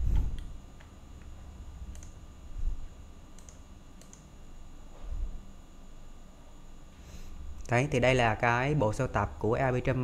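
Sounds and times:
computer mouse clicking: 1.9 - 2.2, 3.4 - 4.3.

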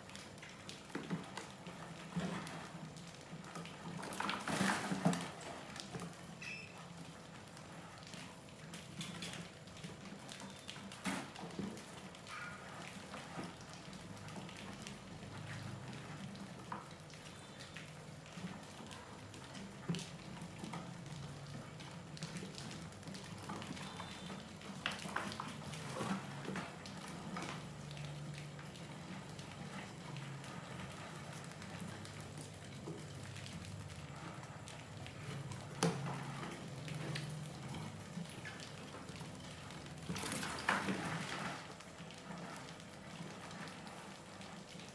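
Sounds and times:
mice scurrying on plastic: 0.1 - 44.9.

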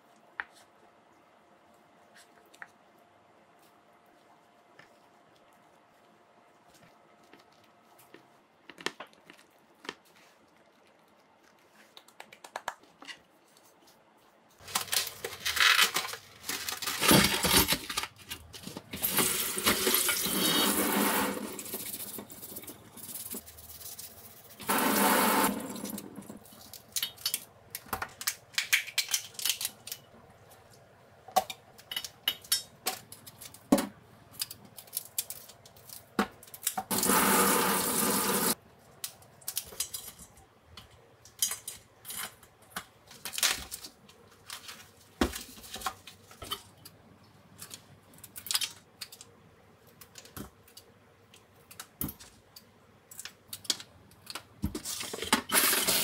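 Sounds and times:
plastic wrap rustling: 13.4 - 27.3
tap water running into sink: 36.9 - 38.6.

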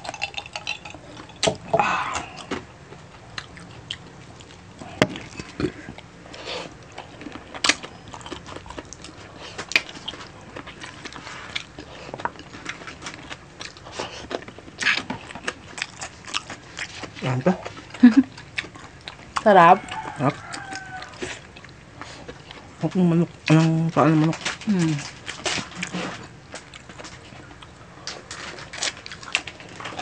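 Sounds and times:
chewing and lip smacks: 3.2 - 22.8.

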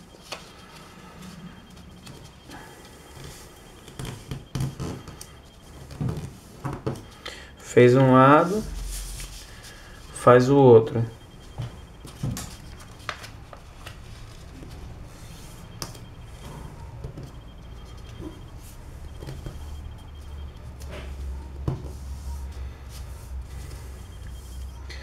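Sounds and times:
low steady hum: 0.0 - 25.0
paper crinkling: 12.0 - 15.9.

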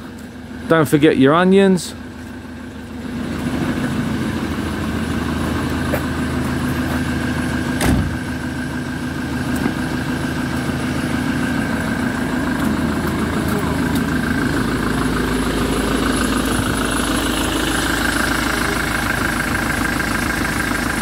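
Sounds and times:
diesel engine idling: 0.0 - 21.0
single thump: 7.8 - 8.2.

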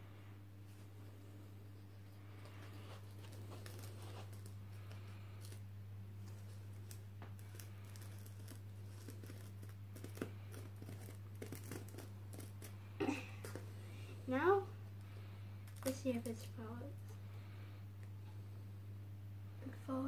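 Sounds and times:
steady low hum: 0.0 - 20.0
scissors scratching cardboard: 7.4 - 12.8.

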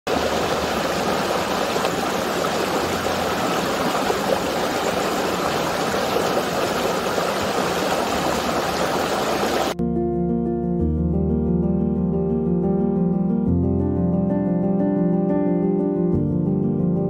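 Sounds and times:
stream water rushing over boulders: 0.1 - 9.8.

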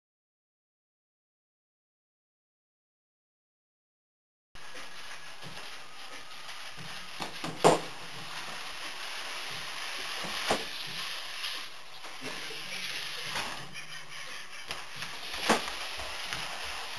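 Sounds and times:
cardboard box dragged across wooden floor: 4.6 - 13.8, 15.0 - 16.9
steady hiss: 4.6 - 16.9.

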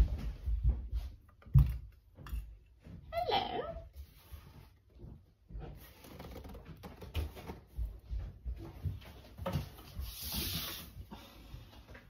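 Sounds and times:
rustling hiss: 10.0 - 11.0.

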